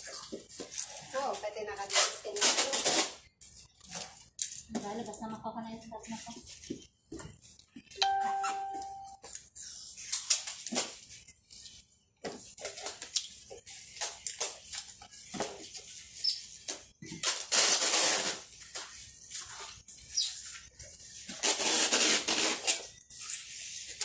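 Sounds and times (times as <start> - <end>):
packing tape ripping off roll: 1.8 - 3.2, 10.0 - 11.2, 16.6 - 18.9, 21.2 - 22.9.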